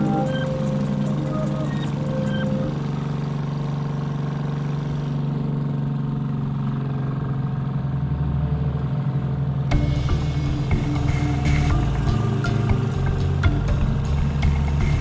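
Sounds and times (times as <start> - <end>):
motorboat engine running: 0.0 - 15.0.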